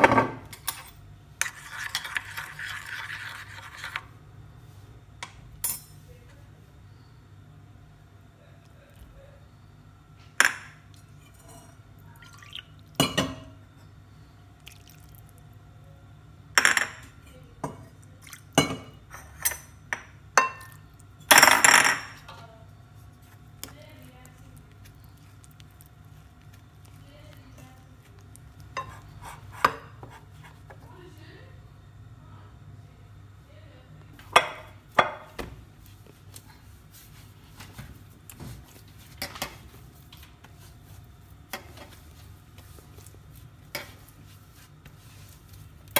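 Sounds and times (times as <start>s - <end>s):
steady low hum: 0.0s - 45.9s
dishes clinking against glass bowl: 10.4s - 13.6s, 18.6s - 22.3s.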